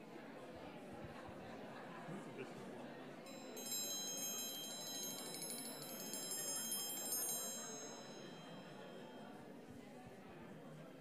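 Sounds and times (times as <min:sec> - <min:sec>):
triangle roll ringing: 0:03.6 - 0:09.2.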